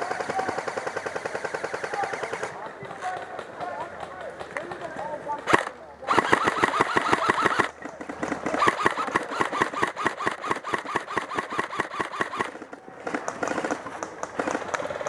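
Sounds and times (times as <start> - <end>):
airsoft rifle rapid firing: 0.0 - 15.0.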